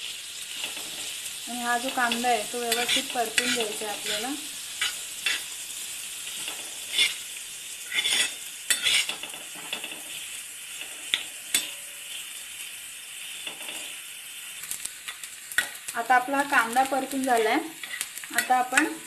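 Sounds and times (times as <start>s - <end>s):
onions sizzling in oil: 0.0s - 19.0s
spatula scraping pan: 1.8s - 5.5s, 6.3s - 12.4s, 17.8s - 19.0s.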